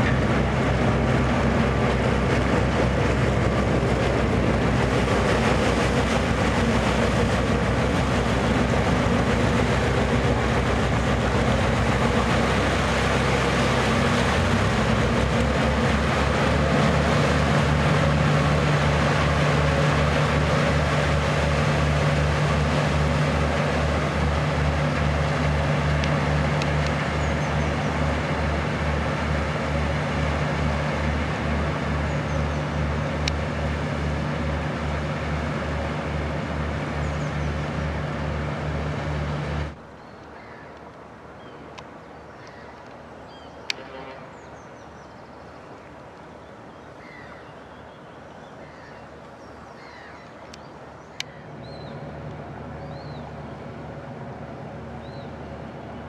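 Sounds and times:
diesel engine droning: 0.0s - 40.0s, 50.9s - 56.0s
bird calls: 41.4s - 53.6s.

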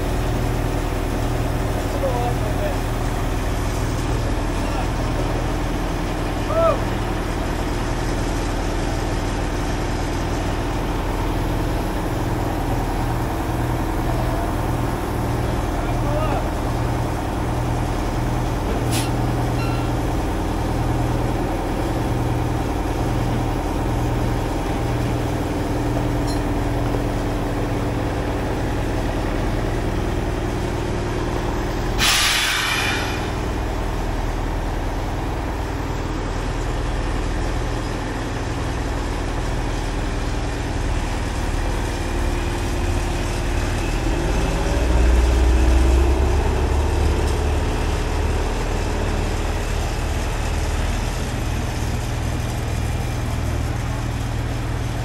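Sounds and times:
crane diesel engine running: 0.0s - 55.0s
hiss of air: 31.9s - 33.6s.

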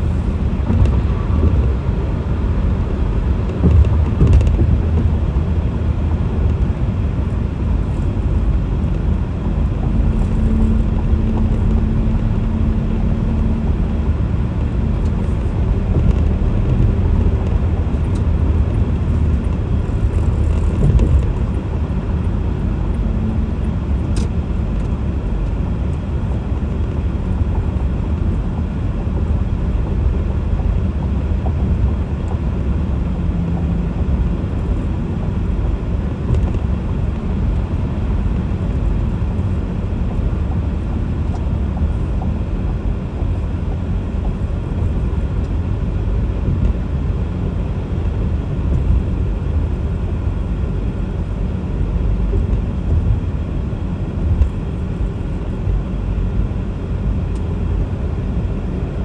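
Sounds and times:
car road and engine rumble: 0.0s - 59.0s.

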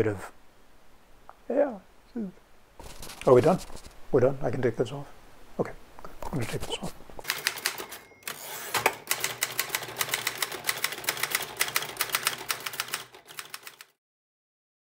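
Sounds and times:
typewriter typing: 7.2s - 14.0s.

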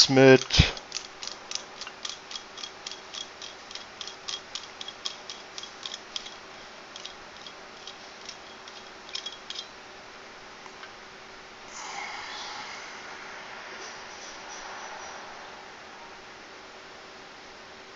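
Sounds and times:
metal threads ticking as turned: 0.0s - 9.8s.

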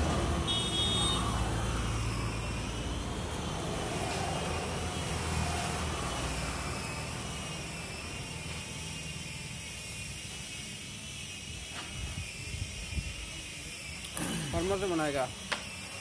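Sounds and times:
distant engine rumble with whine: 0.0s - 16.0s.

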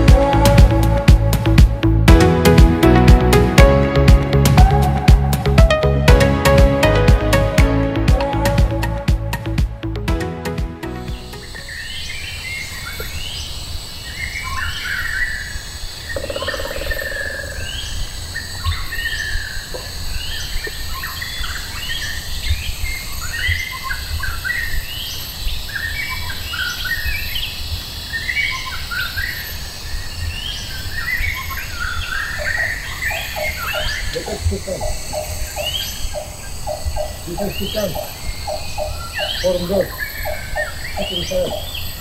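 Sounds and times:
birds chirping: 10.8s - 42.0s
high insect drone: 11.2s - 24.2s, 27.4s - 42.0s.

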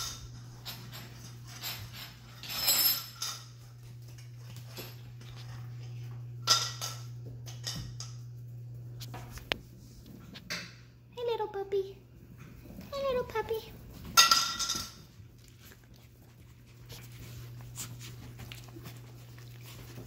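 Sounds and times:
metal spoon clattering on tile floor: 0.0s - 3.6s, 6.4s - 8.2s, 14.0s - 15.1s
steady low hum: 0.0s - 20.0s.

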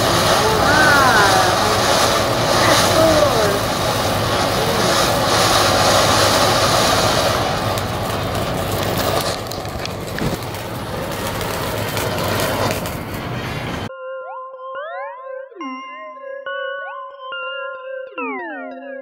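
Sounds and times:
firework fountain hissing: 0.0s - 13.9s.

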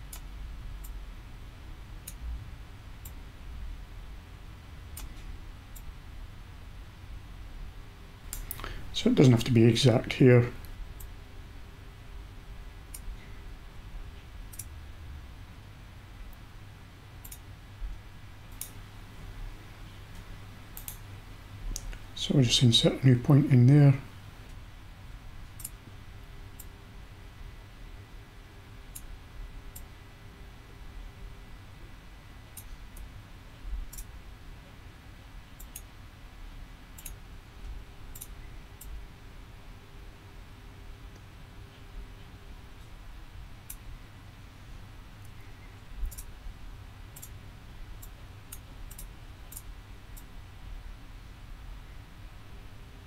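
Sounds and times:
faint low hum: 0.0s - 53.0s
low background rumble: 0.0s - 53.0s
computer mouse clicks: 14.5s - 14.7s, 17.2s - 17.4s, 18.5s - 18.8s, 20.8s - 21.1s, 25.6s - 25.8s, 33.9s - 34.1s, 35.6s - 35.9s, 37.0s - 37.2s, 38.1s - 39.0s, 46.0s - 46.3s, 47.2s - 47.4s, 48.0s - 50.3s.

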